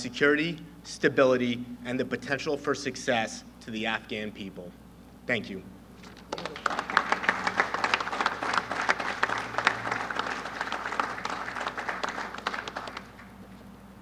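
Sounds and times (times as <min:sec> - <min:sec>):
audience applauding: 0:06.3 - 0:13.5.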